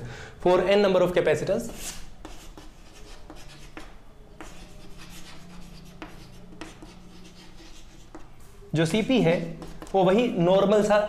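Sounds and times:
chalk scratching on chalkboard: 1.7 - 10.2.

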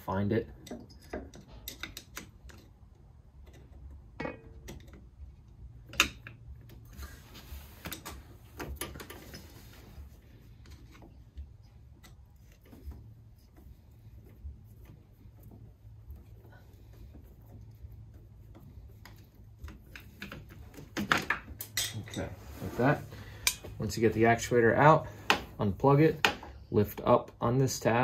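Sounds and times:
hand tools clicking on metal: 0.6 - 3.8, 23.4 - 23.6.

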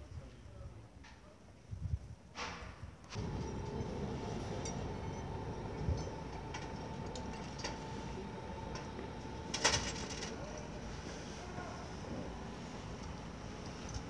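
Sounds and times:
construction site background noise: 0.0 - 14.0
rattling clatter: 3.2 - 10.6.

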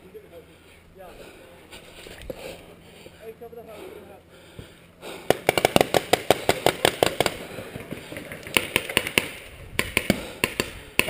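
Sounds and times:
paintball gun rapid pops: 5.2 - 11.0.

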